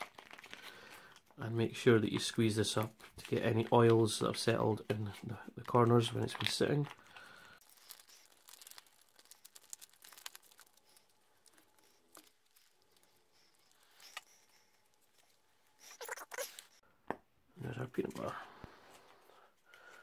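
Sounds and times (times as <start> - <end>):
foil pouch crinkling: 0.0 - 1.2, 5.7 - 16.8.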